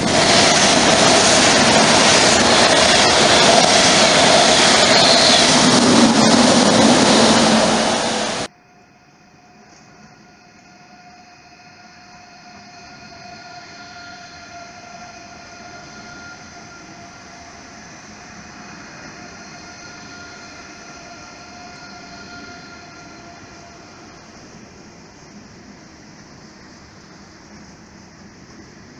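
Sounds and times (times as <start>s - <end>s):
train rolling noise: 0.0s - 28.9s
train whine of held tones: 0.0s - 28.9s.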